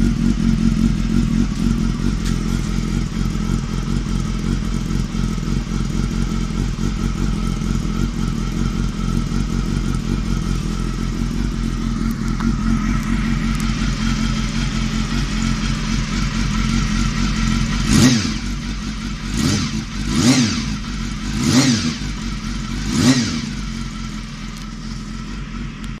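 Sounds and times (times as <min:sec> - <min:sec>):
motorcycle engine idling and revving: 0:00.0 - 0:26.0.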